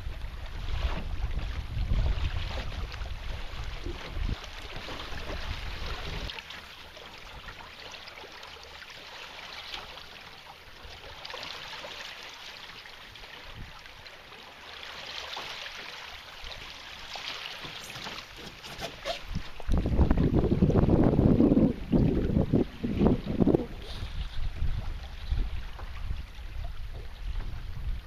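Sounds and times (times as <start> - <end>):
wind buffeting microphone: 0.0 - 6.3, 18.4 - 28.0
water lapping against hull: 0.0 - 28.0.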